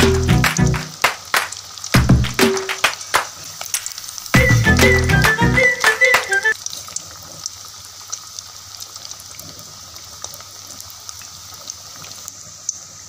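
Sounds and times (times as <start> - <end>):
music: 0.0 - 1.2, 2.0 - 3.0, 4.4 - 6.6
food deep-frying in oil: 0.0 - 13.0.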